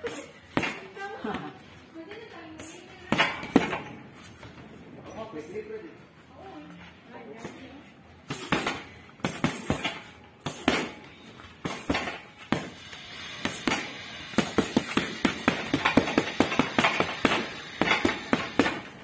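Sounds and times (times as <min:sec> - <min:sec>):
boxing gloves punching heavy bag: 0:08.3 - 0:19.0.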